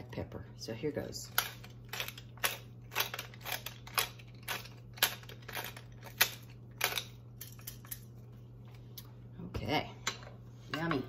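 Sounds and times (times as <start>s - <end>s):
pepper mill grinding: 1.1s - 8.2s.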